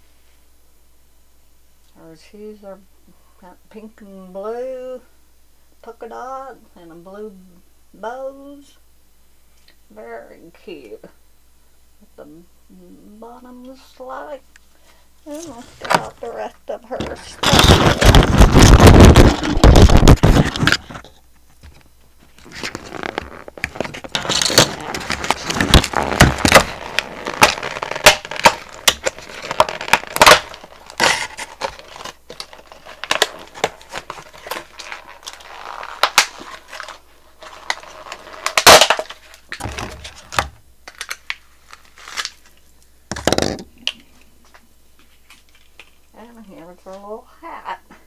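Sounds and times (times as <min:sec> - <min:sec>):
plastic packaging crinkling: 0:17.0 - 0:46.5.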